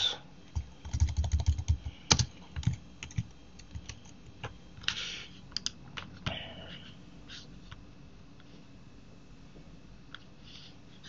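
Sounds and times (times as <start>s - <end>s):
computer keyboard typing: 0.5s - 4.5s.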